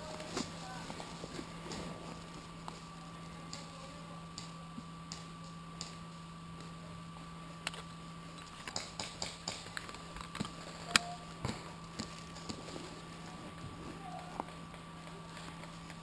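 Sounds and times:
steady electronic hum: 0.0 - 16.0
sharp irregular clicks and taps: 8.6 - 11.1.

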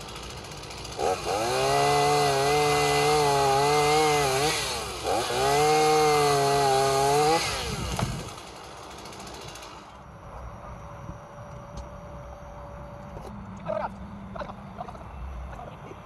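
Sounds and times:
chainsaw cutting branch: 0.0 - 10.0.

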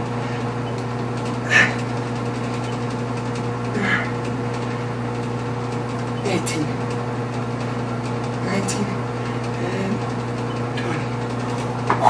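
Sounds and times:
steady mechanical hum: 0.0 - 12.0
man breathing from strain: 1.4 - 1.9, 3.7 - 4.3.

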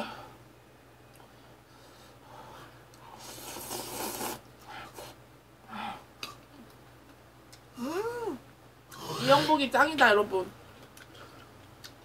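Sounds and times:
noodles slurped: 3.1 - 5.2.

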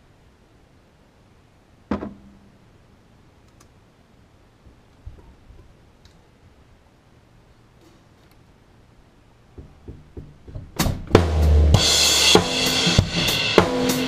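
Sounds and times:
faint ticks: 3.4 - 3.8
drum hit: 10.5 - 14.0.

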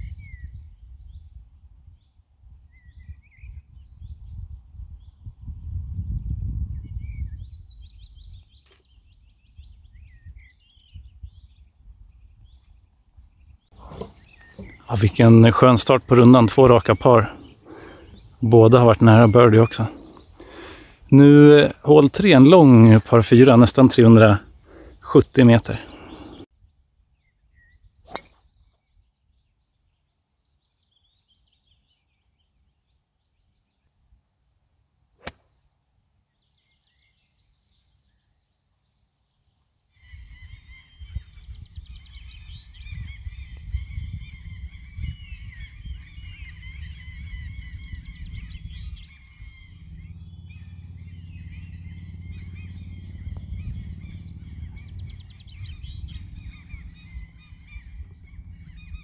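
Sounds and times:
low wind rumble on microphone: 0.0 - 24.7, 40.0 - 59.0
birds chirping and singing: 0.0 - 34.2, 35.1 - 59.0
golf club striking ball: 13.8 - 14.8, 28.1 - 28.4, 35.2 - 35.5.

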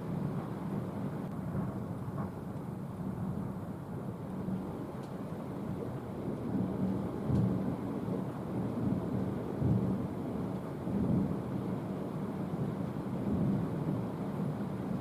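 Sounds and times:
rolling thunder: 1.4 - 3.6.

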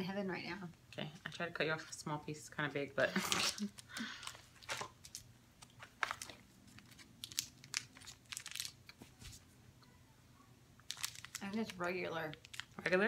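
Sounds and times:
candy wrapper crinkling: 3.2 - 9.2, 10.8 - 13.0.

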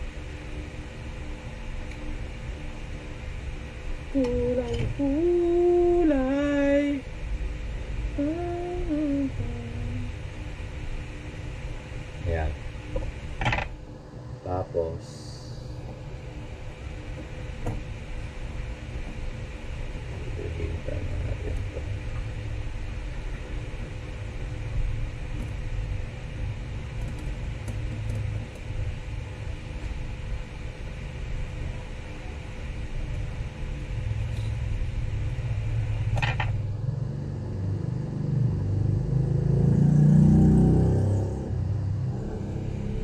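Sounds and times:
low rumble: 40.8 - 43.0.

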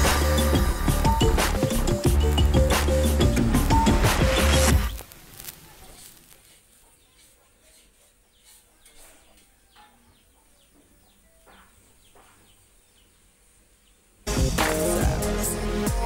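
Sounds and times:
loud electronic music: 0.0 - 5.0, 14.3 - 16.0.

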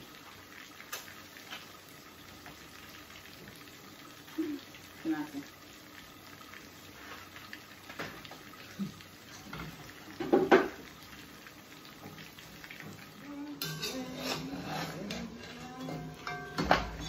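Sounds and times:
spoon stirring in metal saucepan: 12.8 - 17.0
spoon knocking against pot: 15.9 - 17.0.

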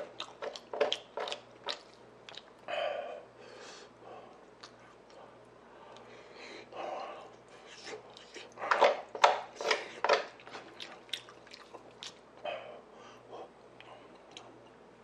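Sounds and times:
chewing and mouth smacking: 0.0 - 2.7, 4.3 - 6.1, 7.0 - 12.4, 13.8 - 14.6.

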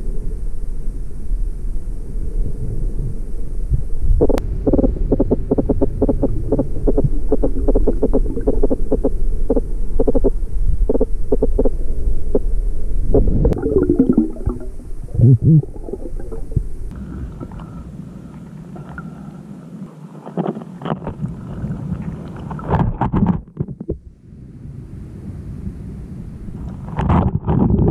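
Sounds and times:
underwater low rumble: 0.0 - 27.9
water gurgling and bubbling: 4.1 - 12.4, 13.0 - 17.8
underwater clicks and crackles: 4.2 - 11.7, 20.1 - 24.0, 26.6 - 27.9.

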